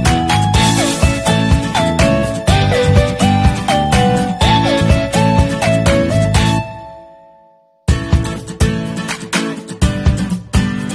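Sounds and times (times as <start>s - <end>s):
strummed acoustic guitar song: 0.0s - 6.9s, 7.9s - 10.9s
melodic background music: 0.0s - 10.9s.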